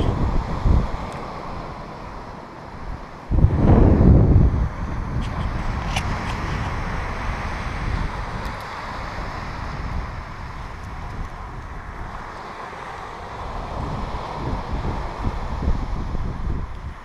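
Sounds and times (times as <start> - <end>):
small waves washing ashore: 0.0 - 17.0
wind buffeting microphone: 0.0 - 17.0.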